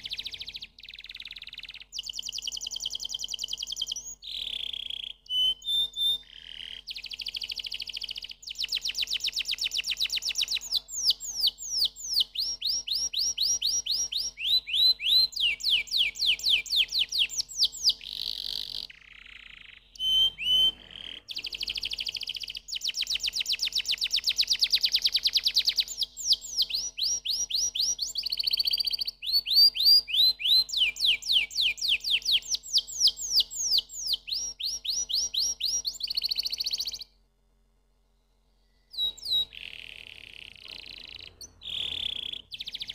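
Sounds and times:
canary singing trills: 0:00.0 - 0:37.1, 0:38.6 - 0:42.9.

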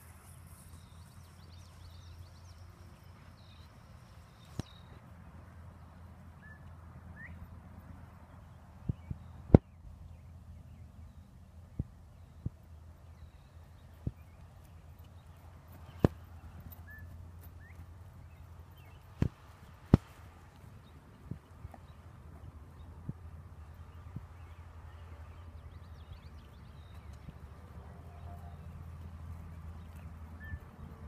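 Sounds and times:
wind rumbling on microphone: 0:00.0 - 0:31.0
faint bird chirps: 0:30.0 - 0:30.9.

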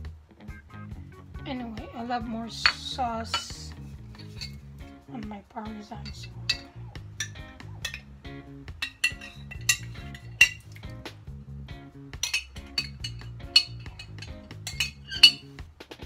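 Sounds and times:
background music: 0:00.0 - 0:16.0
spoon scraping glass jar: 0:02.6 - 0:04.6, 0:06.0 - 0:08.0, 0:08.8 - 0:10.9, 0:12.2 - 0:15.5.

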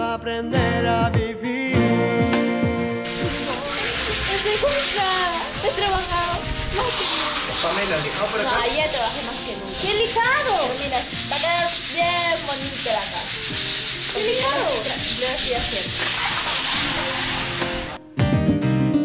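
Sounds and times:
sandpaper scraping wall: 0:03.1 - 0:18.0.

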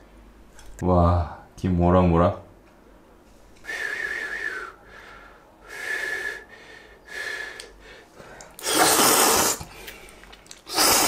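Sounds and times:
airy breaths through lips: 0:03.6 - 0:11.0.

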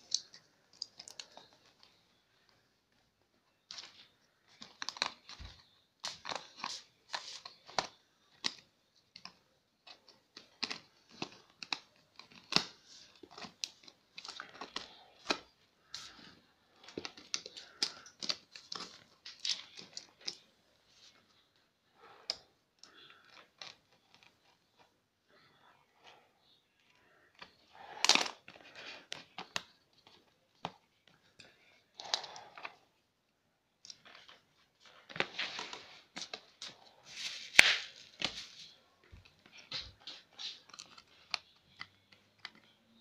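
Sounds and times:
tape tearing: 0:35.1 - 0:38.7.

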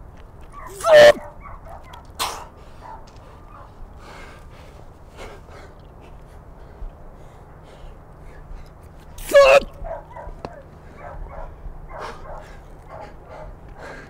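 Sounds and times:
person exhaling forcefully: 0:09.2 - 0:09.6.

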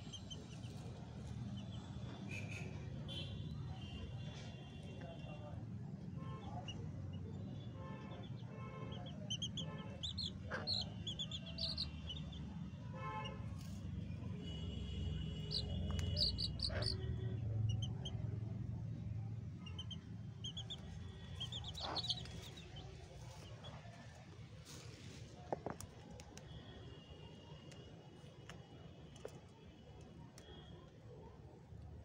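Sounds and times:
chicks peeping: 0:09.3 - 0:12.2, 0:15.4 - 0:17.1, 0:19.6 - 0:23.9.

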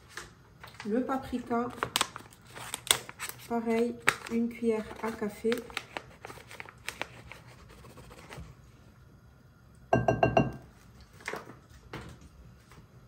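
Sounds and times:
teaspoon tapping bowl rim: 0:09.9 - 0:10.6.

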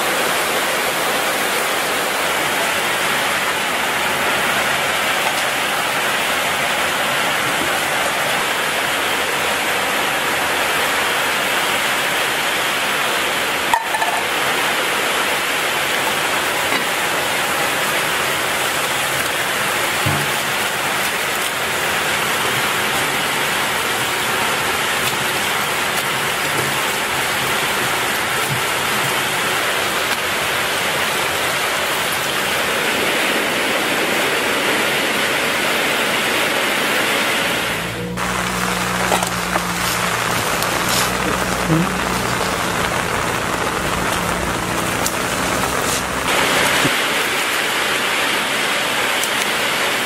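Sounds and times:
water splashing: 0:00.0 - 0:50.0
tap water running into sink: 0:19.1 - 0:30.4.

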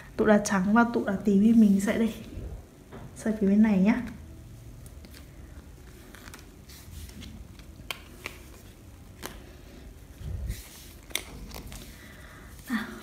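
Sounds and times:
cards rustling: 0:04.8 - 0:13.0
cards clicking and tapping: 0:07.3 - 0:09.5.

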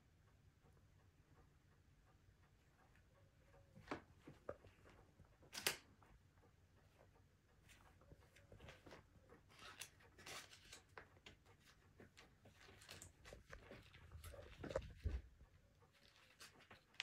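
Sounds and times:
cat scratching paper: 0:08.6 - 0:15.2, 0:15.9 - 0:17.0.

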